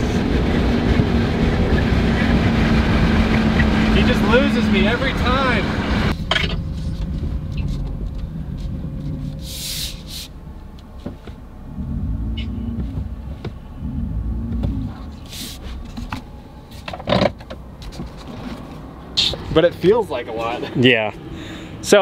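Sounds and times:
truck engine and road rumble: 0.0 - 22.0
short hisses: 9.4 - 10.4.

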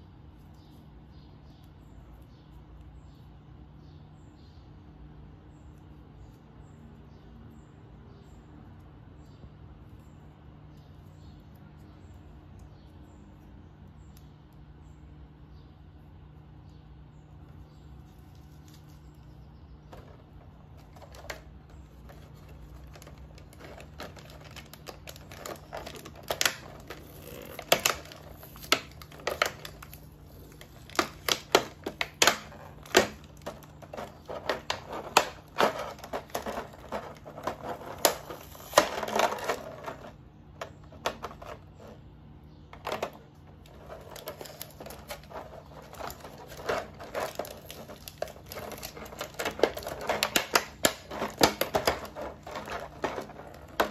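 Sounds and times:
plastic tray crackling and clicking: 19.9 - 42.0, 42.7 - 53.9.

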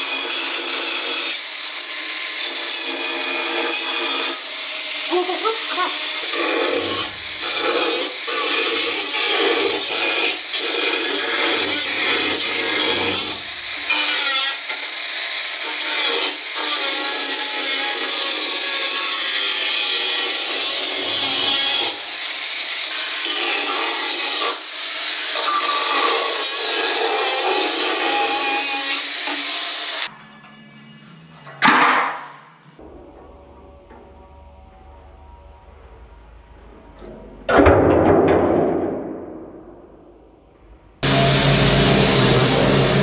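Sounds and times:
angle grinder cutting metal: 0.0 - 30.4, 41.0 - 43.0.

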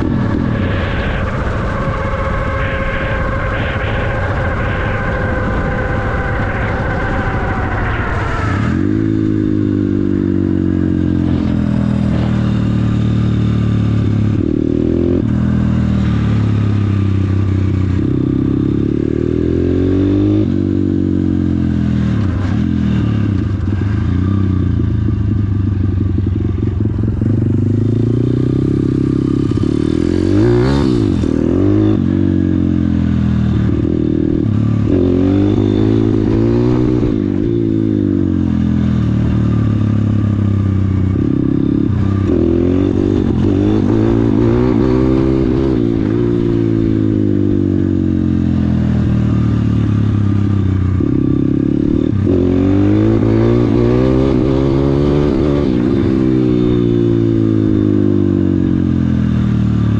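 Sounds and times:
motorbike engine revving through gears: 0.0 - 59.9.

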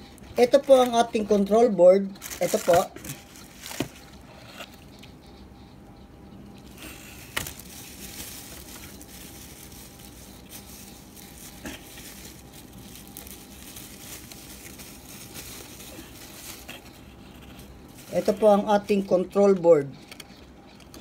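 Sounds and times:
plastic wrap crinkling: 0.4 - 4.3, 6.6 - 19.0
cardboard rubbing: 6.7 - 19.2.

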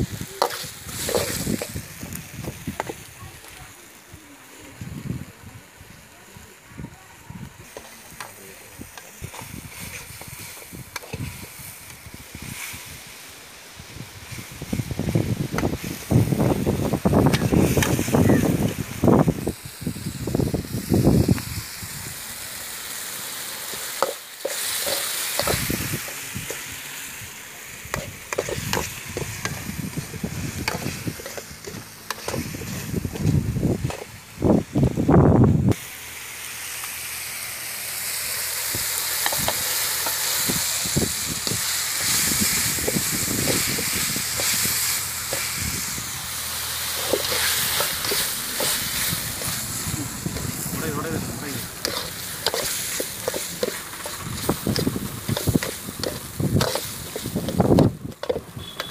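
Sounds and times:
food sizzling in a metal pot: 0.0 - 58.9
metal ladle scraping a pot: 46.9 - 49.6, 51.8 - 57.6.

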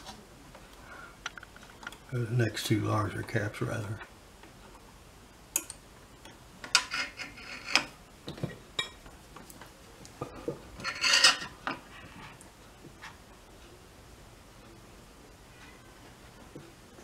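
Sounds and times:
metal tools clicking and scraping: 10.8 - 11.6.

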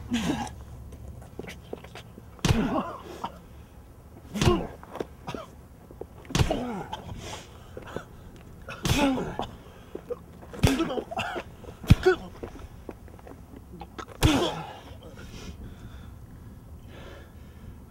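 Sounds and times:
person grunting: 0.0 - 0.6, 8.8 - 9.4
heavy blows: 6.3 - 15.8.

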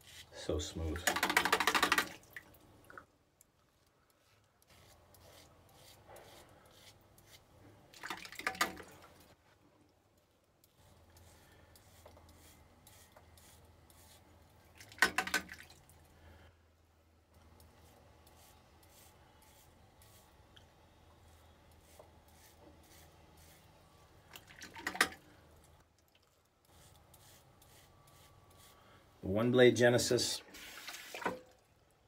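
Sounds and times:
razor scraping stubble: 4.6 - 7.5, 10.6 - 14.4, 17.4 - 20.6, 21.2 - 23.8, 26.6 - 28.8.

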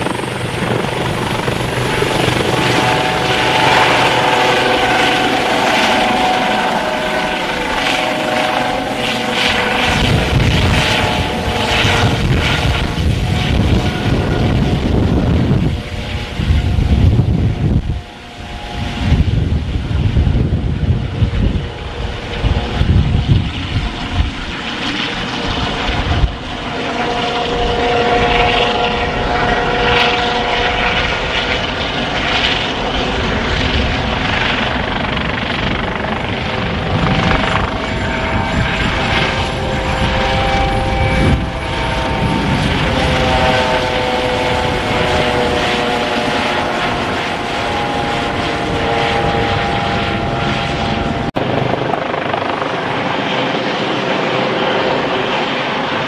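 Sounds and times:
helicopter flying past: 0.0 - 56.0.

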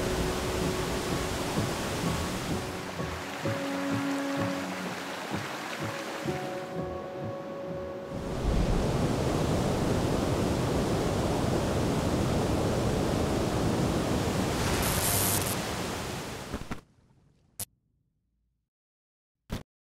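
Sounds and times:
waterfall rushing: 0.0 - 7.3, 8.1 - 16.5.

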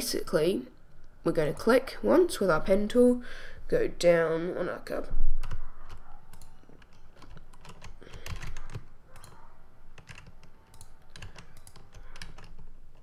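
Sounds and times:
keyboard and mouse clicking: 5.4 - 13.0.

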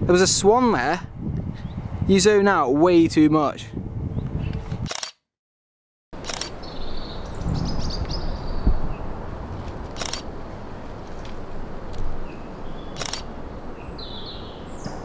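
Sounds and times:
outdoor ambience: 0.0 - 5.2, 6.2 - 15.0
camera shutter clicking: 4.9 - 5.2, 6.2 - 6.6, 9.9 - 10.3, 13.0 - 13.3
bird chirping trill: 6.5 - 9.1, 12.2 - 15.0.

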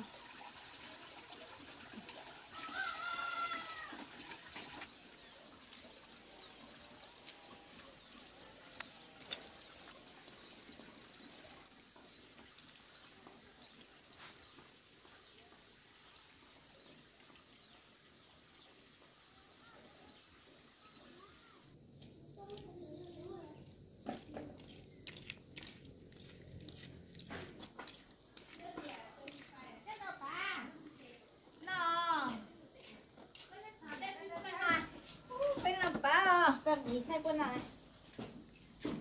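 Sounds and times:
rooster crowing: 2.6 - 3.9.

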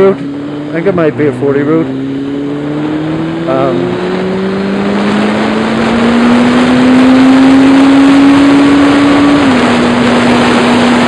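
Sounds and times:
motorcycle engine accelerating: 0.0 - 11.0
wind noise on microphone: 2.3 - 11.0.

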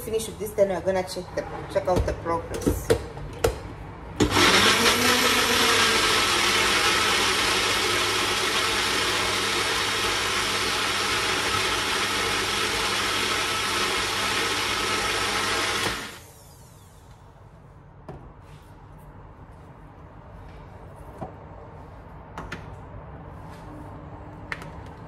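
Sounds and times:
electric blender running: 4.2 - 17.0.

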